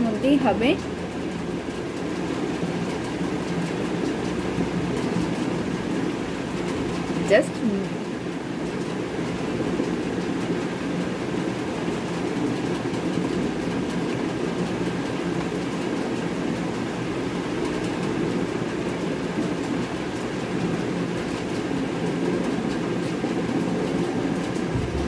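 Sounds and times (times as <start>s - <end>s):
steady low rumbling noise: 15.8s - 25.0s.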